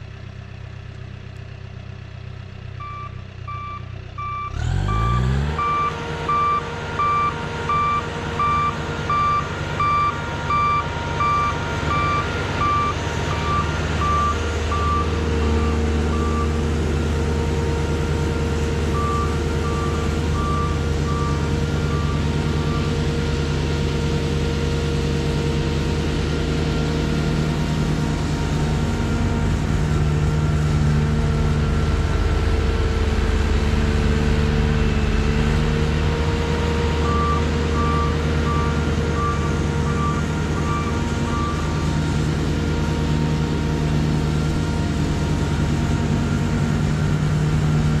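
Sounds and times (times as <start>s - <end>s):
tractor engine droning: 0.0s - 48.0s
backup alarm beeping: 2.8s - 16.6s.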